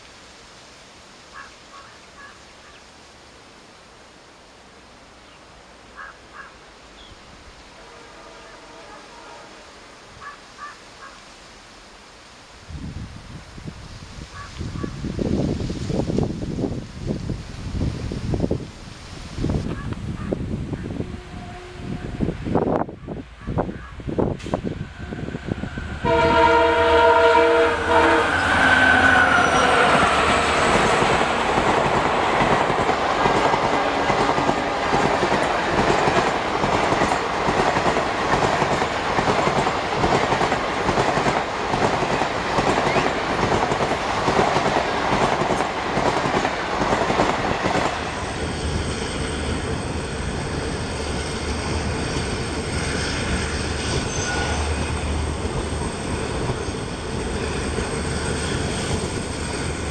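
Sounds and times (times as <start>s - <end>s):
locomotive horn: 7.8s - 9.9s, 20.8s - 22.4s, 24.9s - 30.8s
train running noise from aboard: 12.7s - 59.9s.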